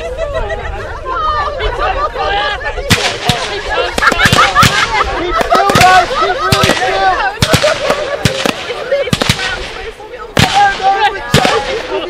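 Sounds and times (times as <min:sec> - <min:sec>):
crowd voices: 0:00.0 - 0:12.0
fireworks banging and cracking: 0:02.9 - 0:12.0.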